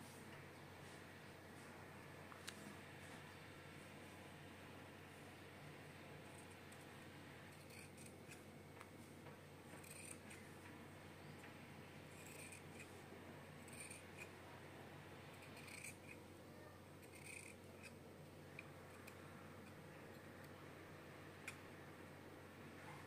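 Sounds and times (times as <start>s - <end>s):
scissors snipping fabric: 9.7s - 10.5s, 12.1s - 13.0s, 13.6s - 14.4s, 15.4s - 16.2s, 17.0s - 19.2s.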